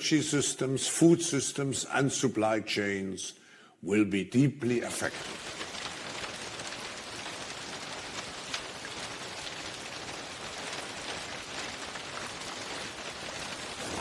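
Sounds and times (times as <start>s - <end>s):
rain hissing: 4.8s - 14.0s
raindrops ticking: 4.8s - 14.0s.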